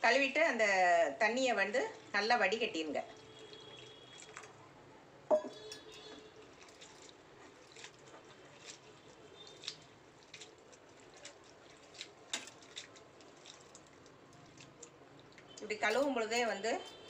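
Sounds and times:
hand squelching rice in water: 0:03.2 - 0:04.6, 0:06.4 - 0:15.6
metallic clink: 0:15.8 - 0:17.0.

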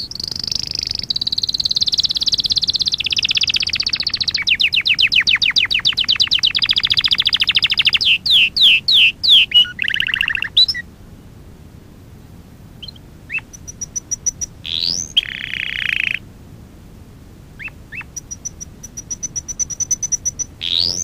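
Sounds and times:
canary singing: 0:00.0 - 0:10.9, 0:12.8 - 0:16.3, 0:17.6 - 0:21.0.

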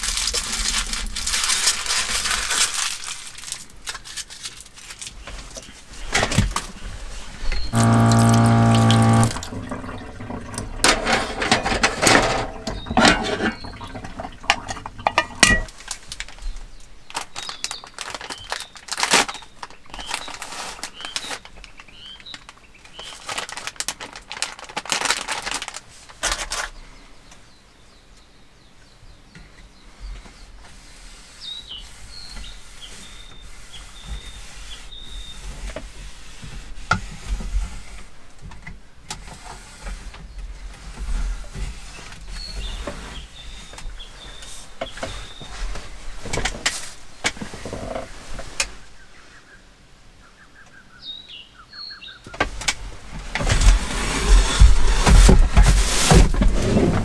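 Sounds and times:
wet-wipe pack rustling: 0:00.0 - 0:06.8, 0:17.1 - 0:26.7
tap running: 0:07.7 - 0:15.4
pans and utensils knocking: 0:10.4 - 0:15.7
small birds chirping: 0:26.7 - 0:35.6, 0:41.8 - 0:46.3, 0:48.1 - 0:52.4.

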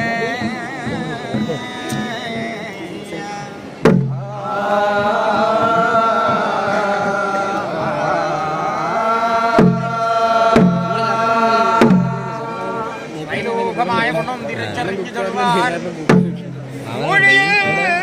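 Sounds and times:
ritual song chanting: 0:00.0 - 0:18.0
loud drum strokes: 0:03.8 - 0:08.0, 0:09.4 - 0:14.1, 0:16.0 - 0:17.0.

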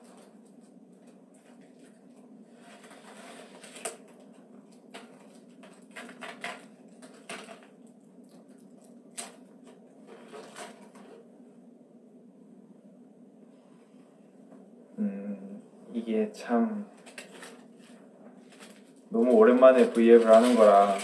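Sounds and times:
food packaging clicks and crackles: 0:00.0 - 0:11.2, 0:16.9 - 0:21.0
low steady hum: 0:00.0 - 0:21.0.

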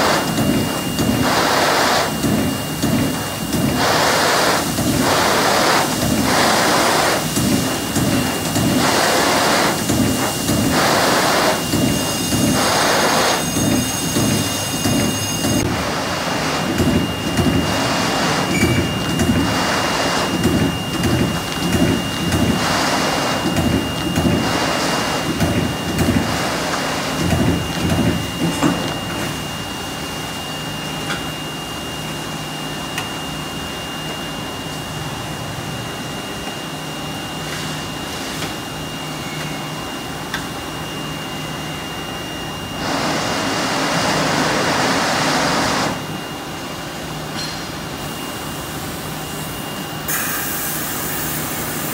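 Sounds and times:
loud hiss: 0:00.0 - 0:00.3, 0:01.1 - 0:16.7, 0:50.1 - 0:51.9
machine hum with high tone: 0:00.0 - 0:51.9.

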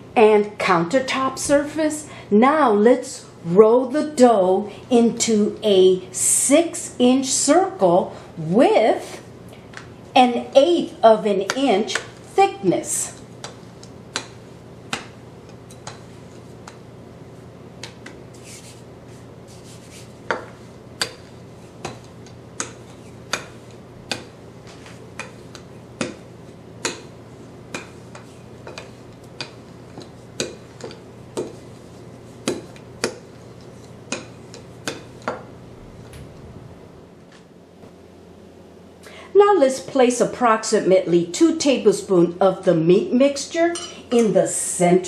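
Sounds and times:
rolling pin rolling dough: 0:11.3 - 0:36.6.

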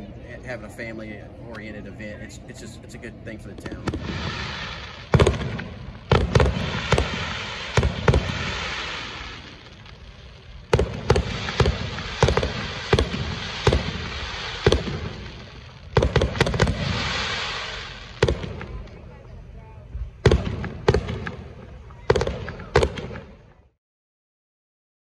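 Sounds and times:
firework shells bursting: 0:03.6 - 0:19.0, 0:20.2 - 0:23.4
firework hiss: 0:03.6 - 0:19.1.

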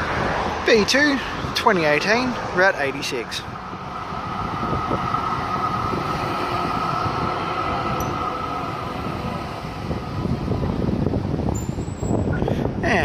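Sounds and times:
tram rumble: 0:00.0 - 0:13.0
tram high whine: 0:02.0 - 0:12.8.

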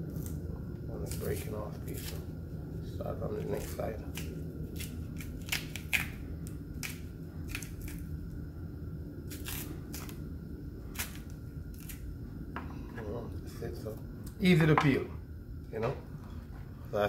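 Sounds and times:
steady low hum: 0:00.0 - 0:17.0
banana skin cracking: 0:03.4 - 0:08.2, 0:09.3 - 0:10.2, 0:10.9 - 0:12.1.

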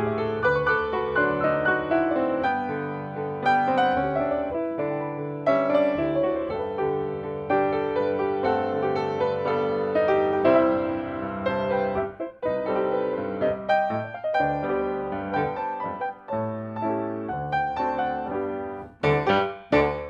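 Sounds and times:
piano duet: 0:00.0 - 0:20.0.

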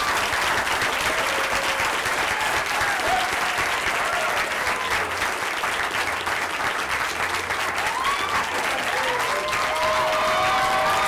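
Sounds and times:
audience applauding: 0:00.0 - 0:11.0.

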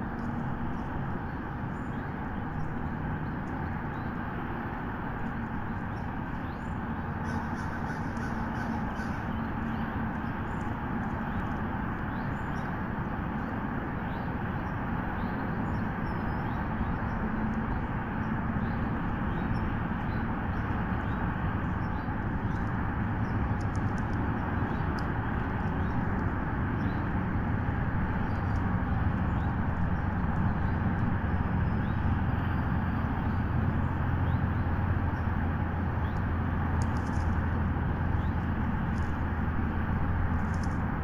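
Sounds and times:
outdoor background noise: 0:00.0 - 0:41.0
faint bird calls: 0:05.9 - 0:11.5.

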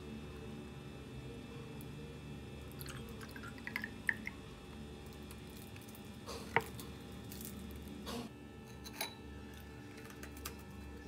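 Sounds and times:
milk pouring into a glass: 0:02.6 - 0:04.4.

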